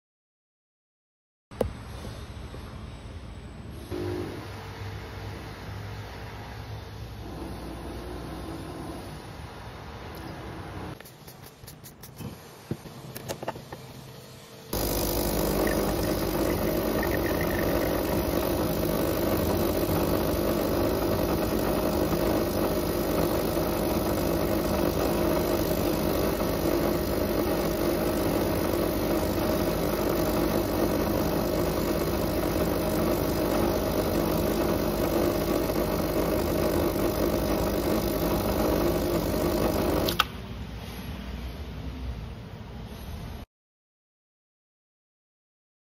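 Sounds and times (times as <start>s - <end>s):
espresso machine pump running: 14.7s - 40.3s.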